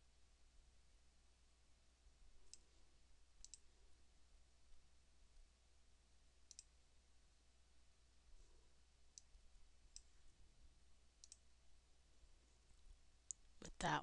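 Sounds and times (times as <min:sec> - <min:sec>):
low steady hum: 0:00.0 - 0:14.0
computer mouse clicks: 0:03.4 - 0:03.6, 0:06.5 - 0:06.7, 0:11.2 - 0:11.4.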